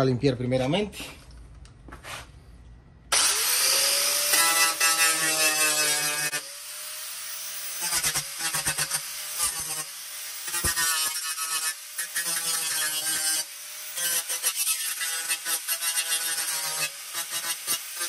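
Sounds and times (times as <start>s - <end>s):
angle grinder motor whine: 3.1s - 10.7s.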